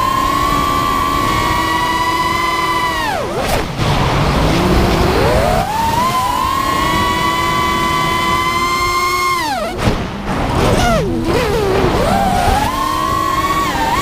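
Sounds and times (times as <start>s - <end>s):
quadcopter motors whining: 0.0s - 9.8s, 10.7s - 14.0s.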